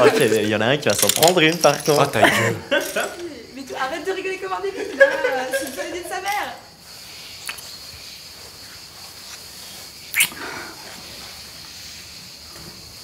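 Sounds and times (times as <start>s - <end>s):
steady high hiss: 0.0s - 13.0s
people kissing: 7.4s - 7.7s, 10.1s - 10.6s.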